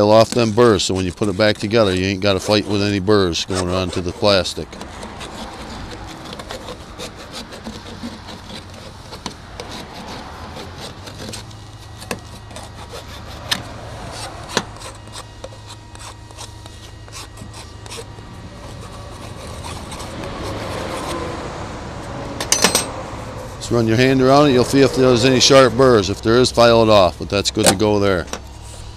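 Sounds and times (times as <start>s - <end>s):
file rasping on plastic tube: 0.0s - 21.5s.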